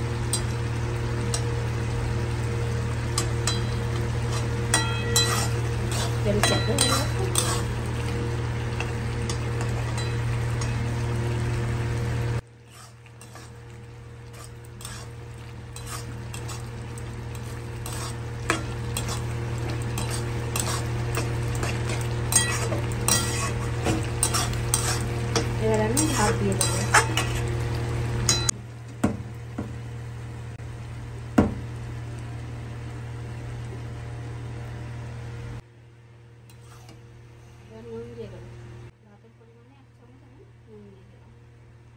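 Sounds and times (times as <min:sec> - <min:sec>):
low sizzle: 0:00.0 - 0:41.9
steady hum: 0:00.0 - 0:41.9
metal spatula scraping pan: 0:03.2 - 0:10.8, 0:12.6 - 0:27.6, 0:36.5 - 0:37.0.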